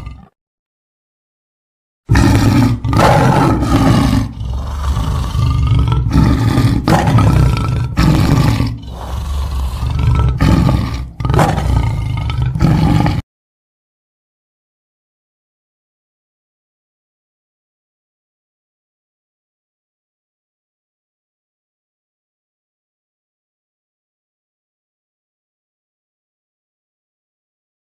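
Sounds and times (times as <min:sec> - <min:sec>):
big cat roaring: 0:00.0 - 0:00.3, 0:02.1 - 0:13.2.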